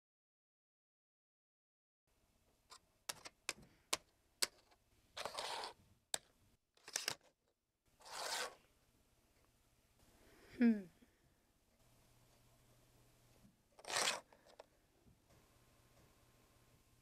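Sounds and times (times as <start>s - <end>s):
plastic game pieces clicking: 3.1s - 7.3s, 13.8s - 14.7s
plastic pieces scraping: 3.1s - 7.4s, 8.0s - 8.6s, 13.8s - 14.7s.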